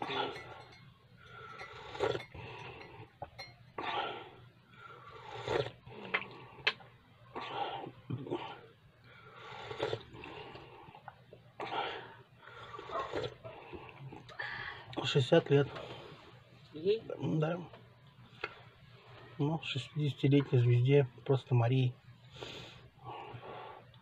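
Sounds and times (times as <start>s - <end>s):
person slurping tea: 1.7s - 2.4s, 5.1s - 6.3s, 9.4s - 10.6s.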